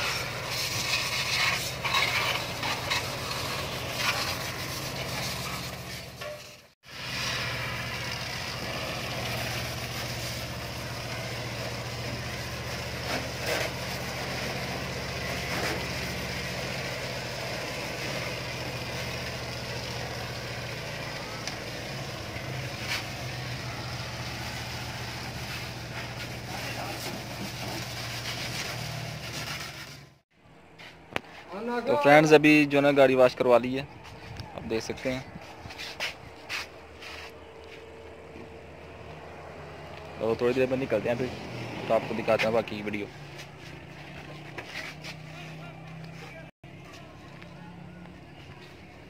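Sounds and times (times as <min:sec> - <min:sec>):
pressure washer humming: 0:00.0 - 0:30.1
water jet hissing: 0:06.9 - 0:29.8.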